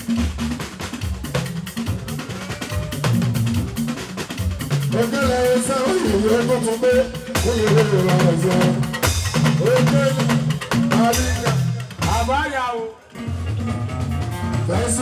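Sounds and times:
stepping bass line: 0.0s - 12.6s, 13.2s - 15.0s
drums and percussion: 0.0s - 15.0s.

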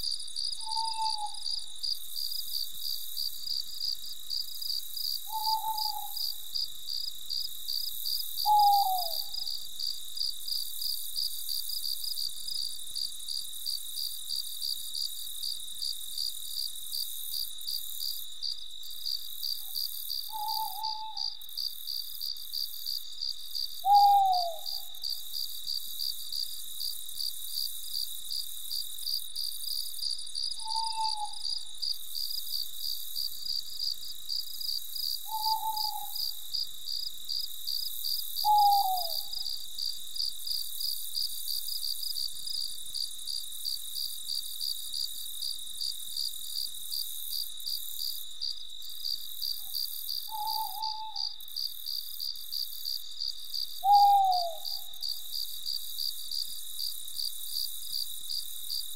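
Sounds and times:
crickets chirping: 0.0s - 58.9s
owl hooting: 0.6s - 1.7s, 5.2s - 6.4s, 8.4s - 9.5s, 20.3s - 21.4s, 23.8s - 25.0s, 30.6s - 31.7s, 35.2s - 36.4s, 38.4s - 39.6s, 50.3s - 51.4s, 53.8s - 55.1s.

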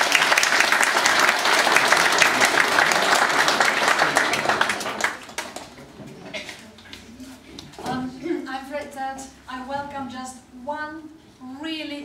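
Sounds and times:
audience applauding: 0.0s - 5.8s.

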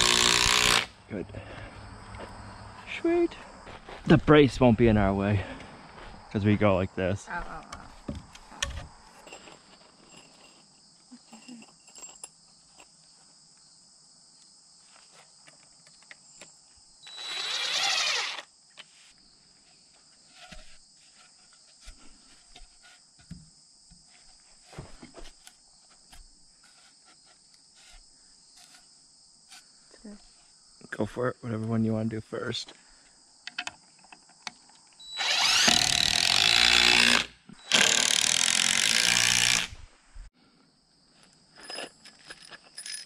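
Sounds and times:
cordless drill driving a screw: 0.0s - 0.9s, 17.0s - 18.5s, 35.0s - 39.8s
insect chirring: 5.6s - 21.7s, 32.8s - 39.6s.

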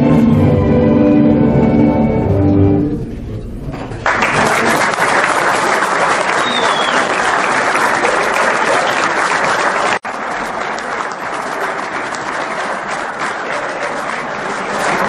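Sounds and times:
audience applauding: 3.8s - 15.0s.

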